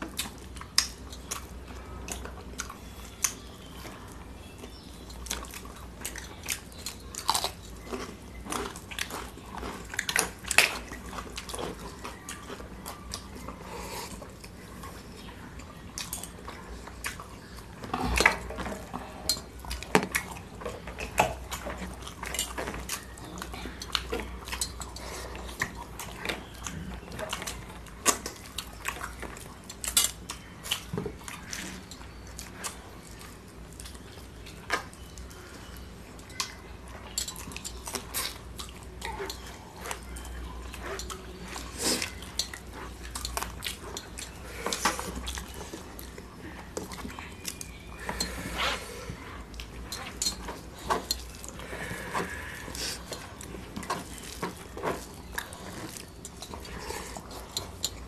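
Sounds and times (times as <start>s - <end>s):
chewing: 0.0s - 58.0s
fingers and food clinking plates: 17.8s - 58.0s.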